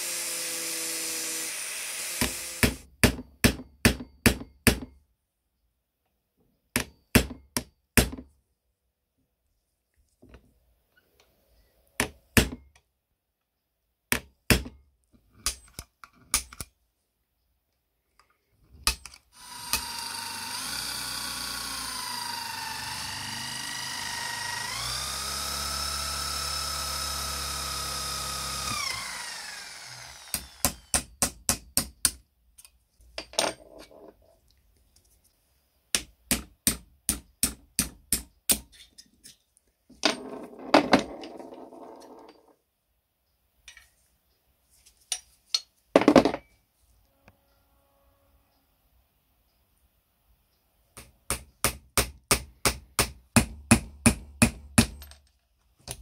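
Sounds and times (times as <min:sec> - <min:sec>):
power drill boring into iron: 0:00.0 - 0:02.9, 0:19.4 - 0:31.2.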